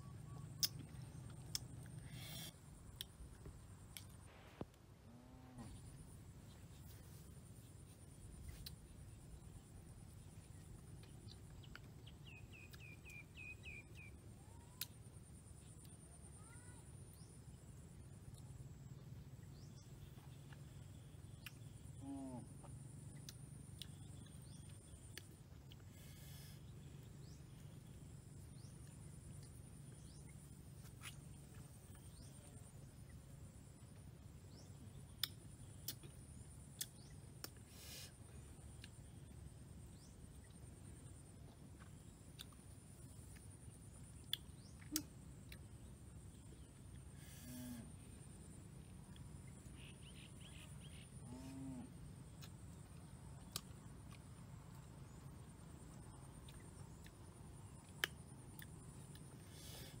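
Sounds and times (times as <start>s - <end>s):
bird chirps: 0.0s - 2.5s, 11.0s - 14.9s, 49.5s - 51.1s
faint chirps: 0.0s - 60.0s.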